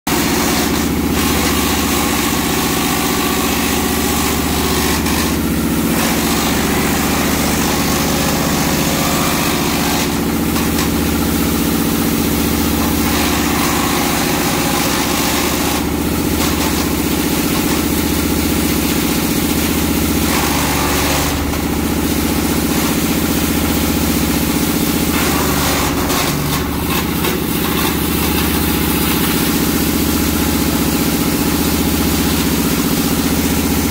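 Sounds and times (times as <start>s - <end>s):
wood crunching in chipper: 0.1s - 30.9s
wood chipper engine running: 0.1s - 33.9s.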